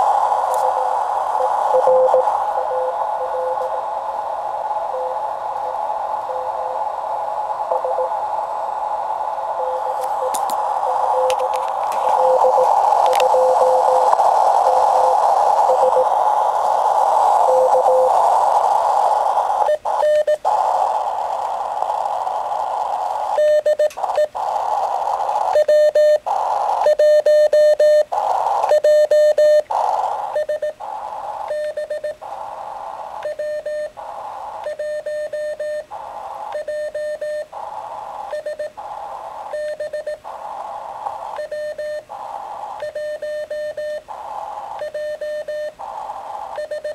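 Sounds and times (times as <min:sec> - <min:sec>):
faint steady tone: 0:00.0 - 0:46.9
radio band hiss: 0:00.0 - 0:46.9
morse code tone: 0:00.6 - 0:03.8, 0:04.9 - 0:05.2, 0:07.7 - 0:08.2, 0:09.6 - 0:16.2, 0:17.4 - 0:18.2.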